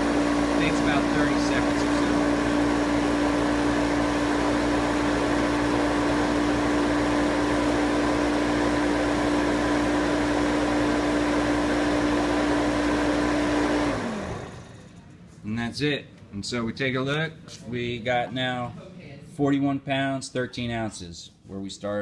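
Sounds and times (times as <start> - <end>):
refrigerant recovery machine humming: 0.0 - 15.2.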